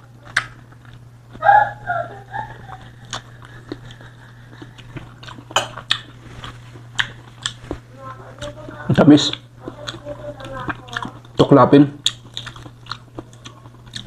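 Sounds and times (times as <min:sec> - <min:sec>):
wet lip smacks and chewing: 0:02.8 - 0:07.8, 0:12.0 - 0:14.0.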